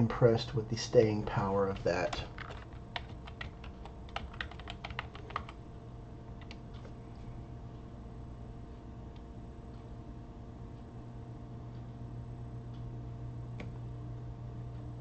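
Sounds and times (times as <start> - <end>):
computer keyboard typing: 1.7 - 5.6, 6.4 - 6.9.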